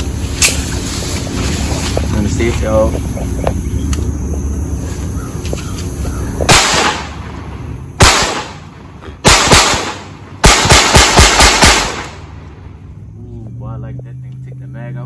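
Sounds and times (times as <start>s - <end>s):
pistol shots: 6.5s - 7.4s, 8.0s - 12.5s.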